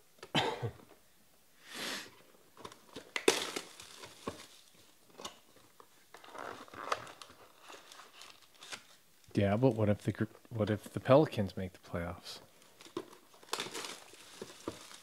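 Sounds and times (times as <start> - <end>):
cellophane tearing and crinkling: 2.6 - 5.4, 6.1 - 9.0, 12.6 - 15.0.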